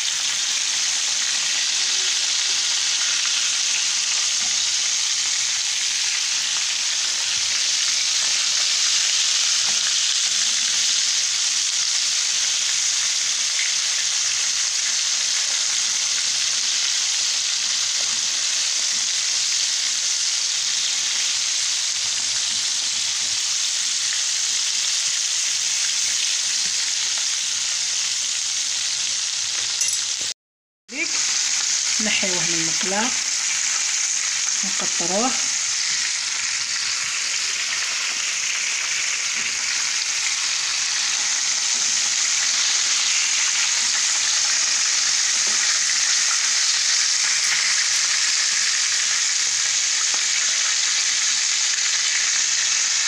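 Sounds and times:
fish sizzling in hot oil: 0.0 - 53.0
fork and spoon turning fish: 29.6 - 30.3, 38.8 - 48.7.

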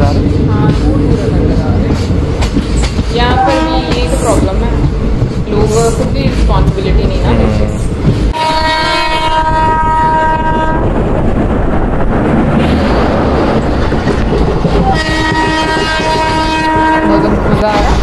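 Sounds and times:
train rumbling and clattering: 0.0 - 18.0
train horn: 3.3 - 4.4, 8.3 - 10.9, 14.9 - 17.8.

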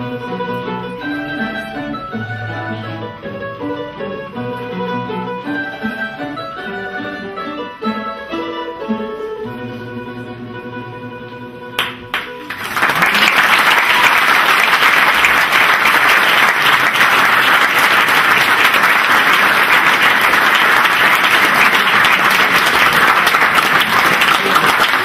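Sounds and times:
crowd applauding: 11.8 - 25.0.

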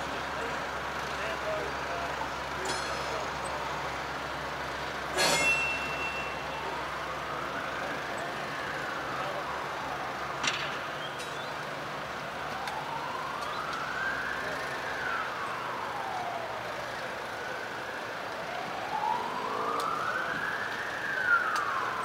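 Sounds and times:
siren wailing: 5.3 - 22.0.

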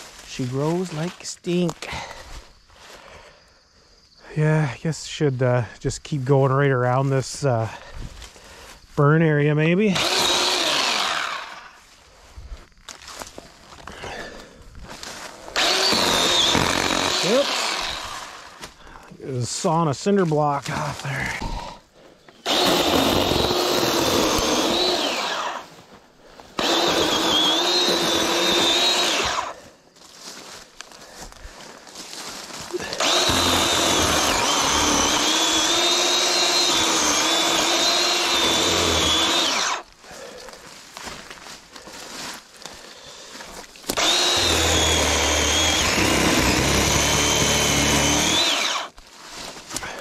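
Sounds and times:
chainsaw cutting brush: 0.0 - 2.3, 9.7 - 12.2, 13.1 - 18.8, 20.4 - 25.9, 26.5 - 29.7, 30.3 - 50.0.

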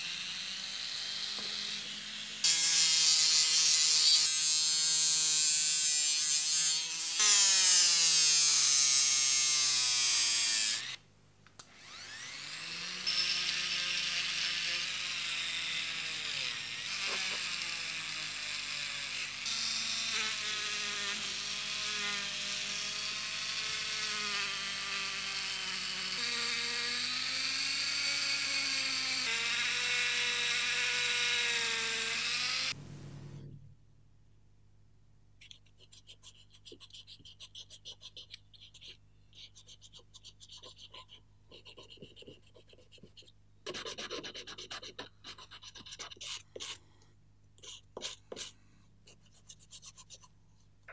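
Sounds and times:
rotary tool motor whine: 0.0 - 2.5, 11.7 - 32.8.

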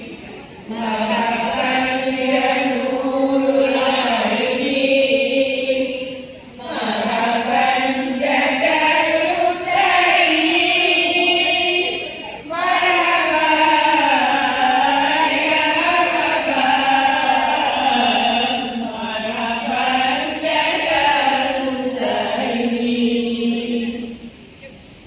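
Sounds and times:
women chanting in unison: 0.0 - 24.3.

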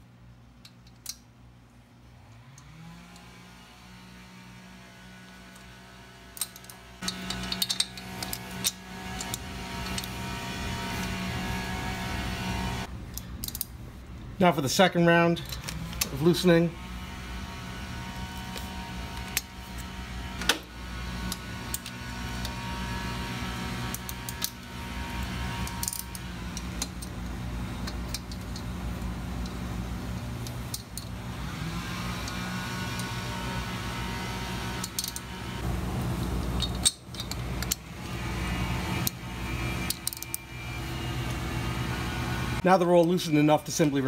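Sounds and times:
steady low hum: 0.0 - 42.6
metallic wrench clicks: 13.1 - 13.7.

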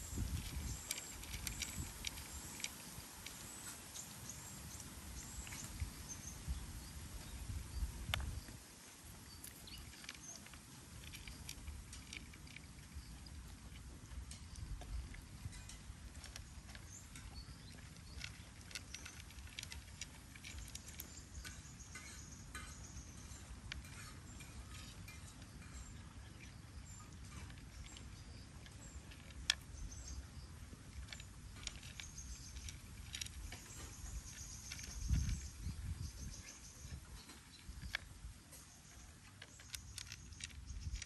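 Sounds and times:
cat crunching dry kibble: 0.0 - 5.8, 9.3 - 22.6, 27.1 - 41.0.

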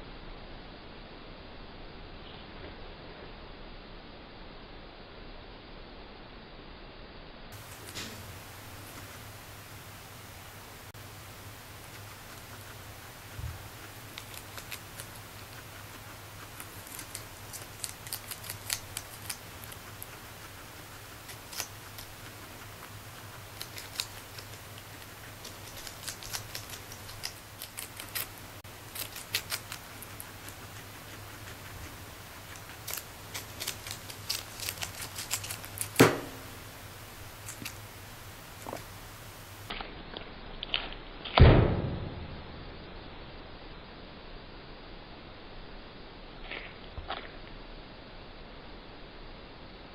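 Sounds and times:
guinea pig crunching lettuce: 11.0 - 41.4, 46.4 - 47.6.

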